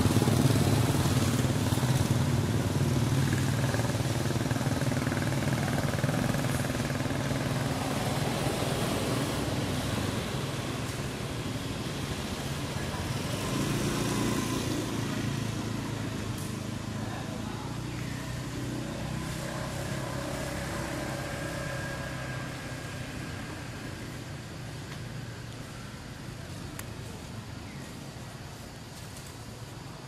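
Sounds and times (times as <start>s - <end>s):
vehicle engine humming: 0.0s - 30.0s
faint sharp clicks: 26.7s - 27.0s.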